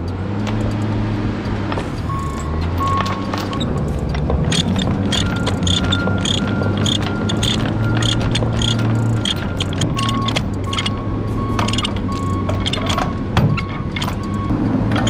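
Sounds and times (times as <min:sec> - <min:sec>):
ratchet clicking: 0:02.0 - 0:11.0, 0:11.6 - 0:13.1.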